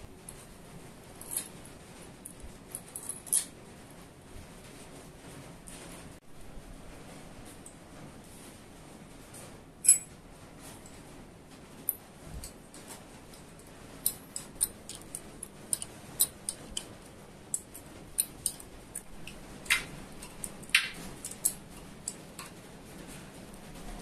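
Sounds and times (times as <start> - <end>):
spanner clicking on nuts: 13.4 - 22.6.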